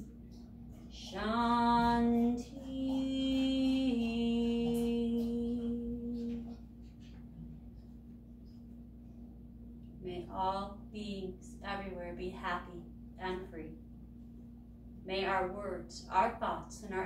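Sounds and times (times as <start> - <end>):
woman chanting: 0.9 - 6.5, 10.0 - 13.7, 15.1 - 17.0.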